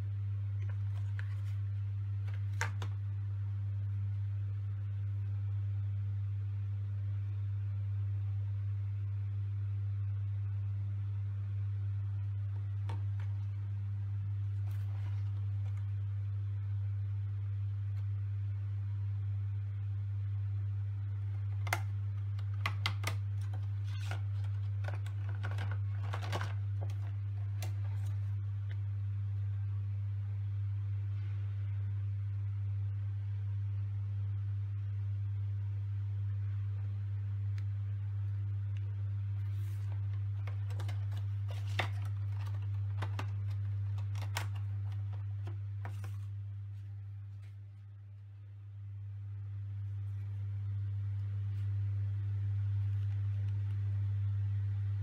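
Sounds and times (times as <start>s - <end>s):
steady low hum: 0.0s - 55.0s
plastic case clicking and crinkling: 2.2s - 3.0s, 21.5s - 28.3s, 40.4s - 46.3s
plastic packaging crackling: 21.4s - 28.4s, 39.6s - 46.3s.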